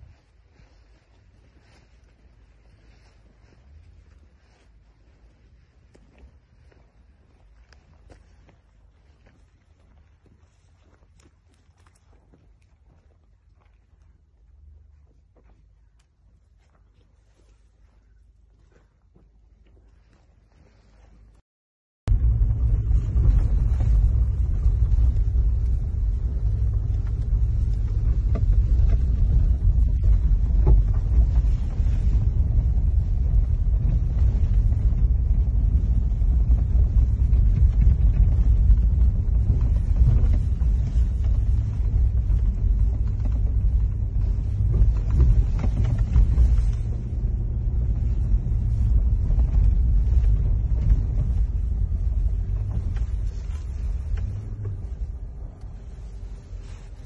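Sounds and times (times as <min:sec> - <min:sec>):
car driving over rough road: 0:22.1 - 0:57.0.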